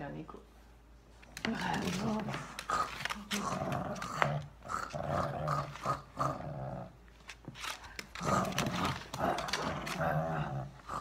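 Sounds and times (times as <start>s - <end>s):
small dog growling playfully: 1.8s - 7.0s, 8.1s - 11.0s.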